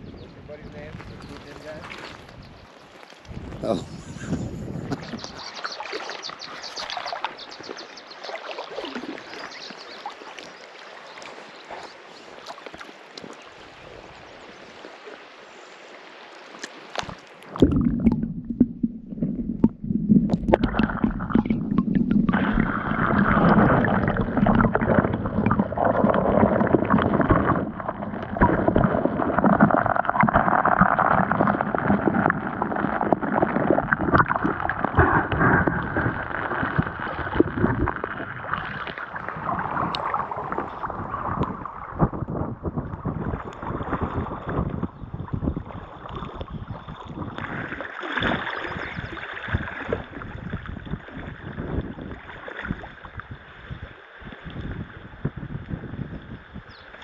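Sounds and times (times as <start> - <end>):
river water gurgling: 1.6 - 42.0.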